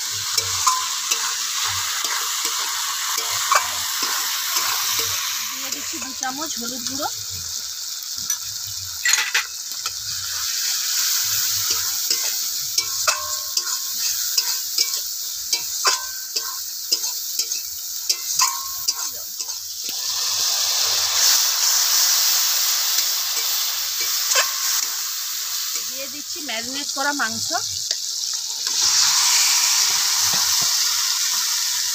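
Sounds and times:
masala sizzling in oil: 0:00.0 - 0:31.9
metal spatula scraping pan: 0:00.2 - 0:07.0, 0:08.3 - 0:10.0, 0:10.9 - 0:19.6, 0:22.9 - 0:25.0
spatula clinking against pan: 0:00.3 - 0:01.4, 0:11.6 - 0:19.6, 0:23.0 - 0:25.0.

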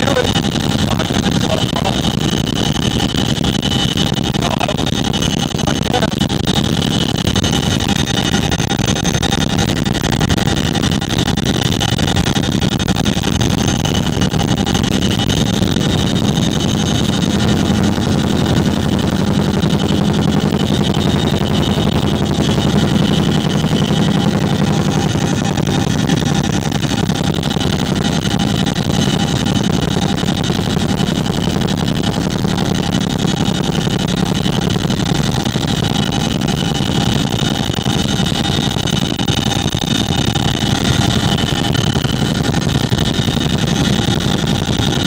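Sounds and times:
helicopter cabin noise: 0:00.0 - 0:45.0.

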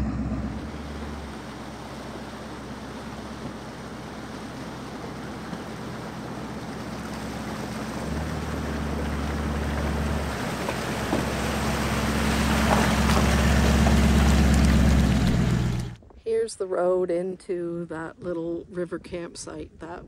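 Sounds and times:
vehicle engine humming: 0:00.0 - 0:16.0
road and wind noise: 0:00.0 - 0:16.2.

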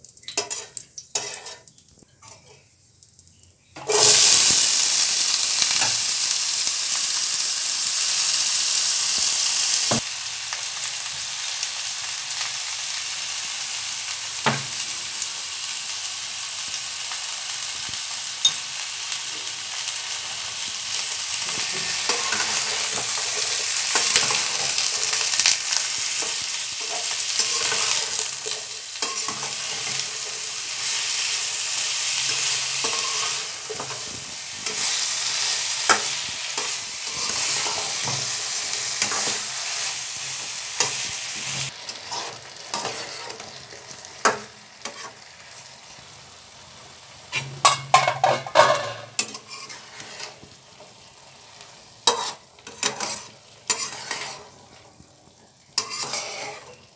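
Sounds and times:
metal spatula scraping pan: 0:00.4 - 0:01.7, 0:26.0 - 0:31.3, 0:32.1 - 0:43.6, 0:44.8 - 0:45.2, 0:47.3 - 0:50.4, 0:52.0 - 0:54.6, 0:55.8 - 0:56.9
vegetables sizzling in oil: 0:02.9 - 0:56.9.

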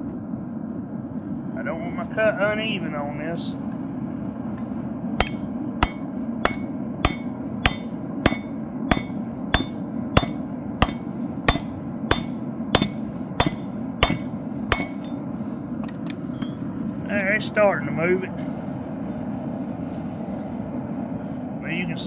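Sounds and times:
hammer striking steel chisel: 0:05.2 - 0:15.2.

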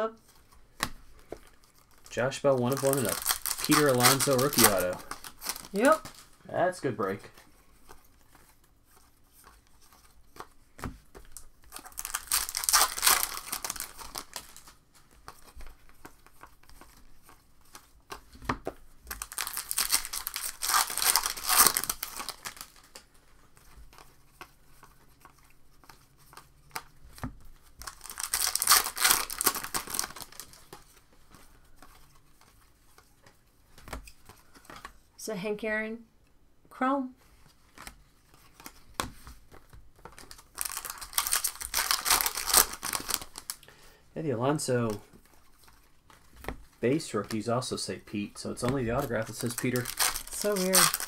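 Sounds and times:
cards being handled: 0:00.2 - 0:35.1, 0:37.2 - 0:43.6, 0:44.7 - 0:51.0
foil wrappers tearing and crinkling: 0:01.6 - 0:06.4, 0:11.3 - 0:15.6, 0:19.1 - 0:23.0, 0:27.6 - 0:30.8, 0:40.1 - 0:43.6, 0:48.4 - 0:51.0.

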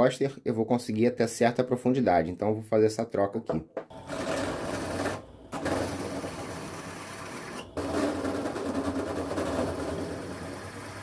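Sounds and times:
drill press boring into wood: 0:04.0 - 0:11.0.

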